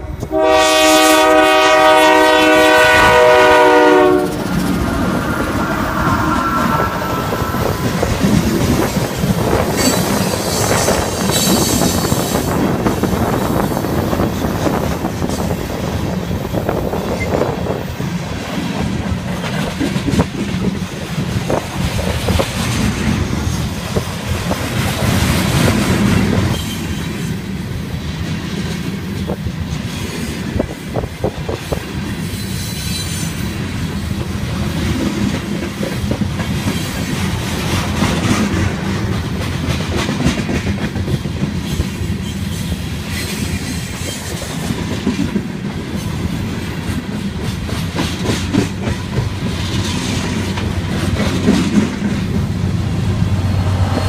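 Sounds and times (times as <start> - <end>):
train wheels rumbling on rails: 0.0 - 54.0
high wheel squeal: 4.3 - 8.4
wheels clicking over rail joints: 18.5 - 27.4, 34.0 - 52.5.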